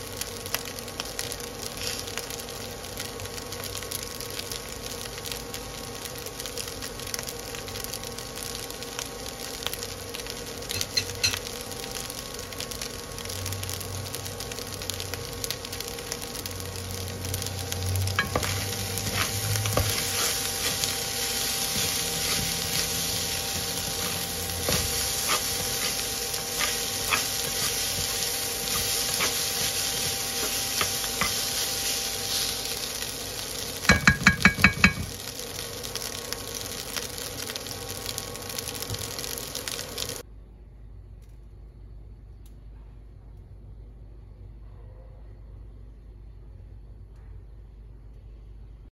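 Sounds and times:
rice sizzling in a pan: 0:00.0 - 0:40.3
spatula scraping a pan: 0:18.1 - 0:32.7.

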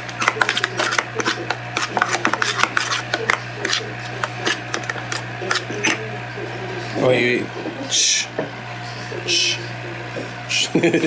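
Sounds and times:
metal spoon scraping a bowl: 0:00.0 - 0:06.0.

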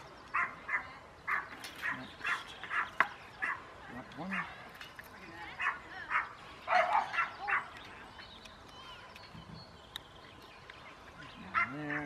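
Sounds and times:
dog barking: 0:00.4 - 0:03.6, 0:05.6 - 0:07.7.

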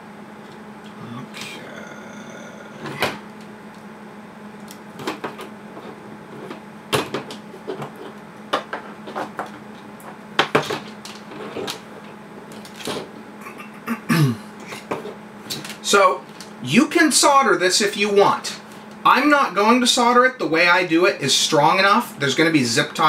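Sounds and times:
steady low hum: 0:00.0 - 0:23.0
wire clicks and rustles: 0:07.2 - 0:13.2, 0:15.0 - 0:16.6.

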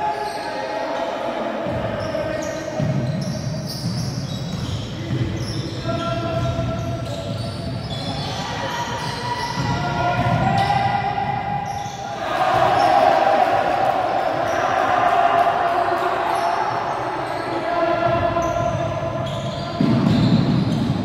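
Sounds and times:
basketball bouncing on wooden court: 0:02.8 - 0:11.8, 0:18.1 - 0:21.0
players shouting: 0:07.8 - 0:20.7.

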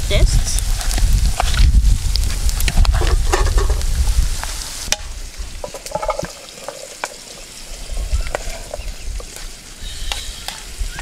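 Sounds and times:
vegetables sizzling in oil: 0:00.0 - 0:11.0
clicks and scrapes of stirring: 0:05.6 - 0:07.4.

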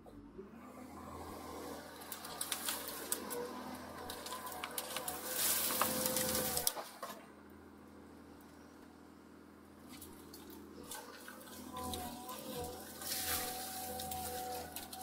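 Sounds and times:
excavator engine and hydraulics: 0:00.0 - 0:15.0
hydraulic whine: 0:00.3 - 0:07.3, 0:10.6 - 0:15.0
roots cracking and snapping: 0:01.6 - 0:07.2, 0:09.9 - 0:15.0.

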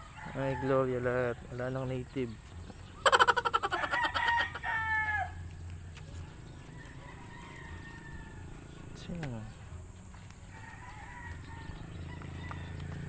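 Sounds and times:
rooster crowing: 0:00.0 - 0:01.5, 0:03.2 - 0:05.4, 0:06.7 - 0:08.9, 0:10.5 - 0:13.0.

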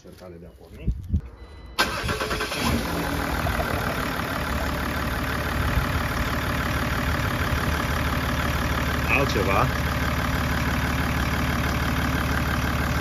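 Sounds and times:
car engine idling: 0:01.3 - 0:13.0.

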